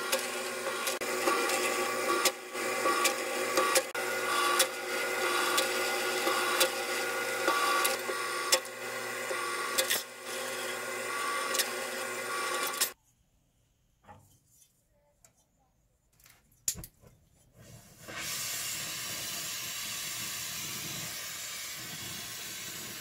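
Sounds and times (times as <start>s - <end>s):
rolling mill whirring: 0.0s - 13.0s.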